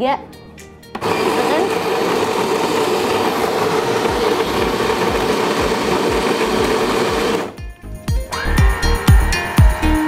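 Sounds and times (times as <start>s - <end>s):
coffee grinder whirring: 1.0s - 7.6s.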